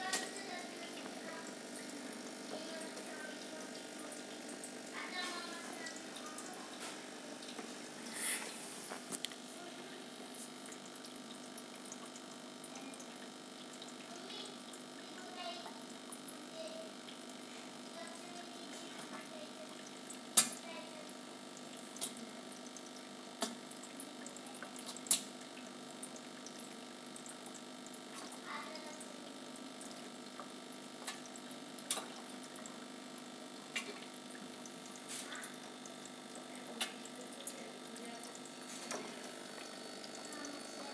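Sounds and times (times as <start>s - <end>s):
aquarium filter water splashing: 0.0s - 40.9s.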